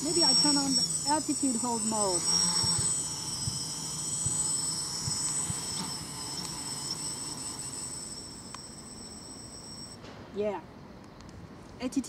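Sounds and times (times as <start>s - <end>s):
drone motors whining: 0.0s - 10.0s.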